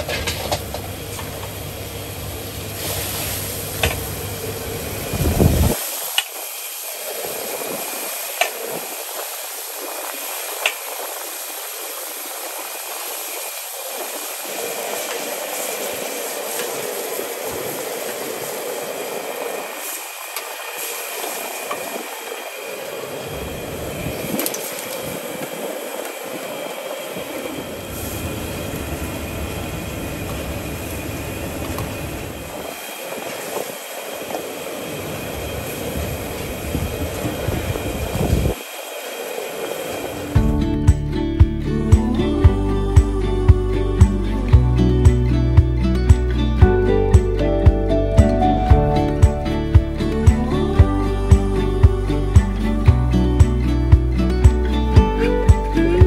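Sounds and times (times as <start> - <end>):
gas burner hissing: 0.0 - 40.4
low rumble: 40.4 - 56.0.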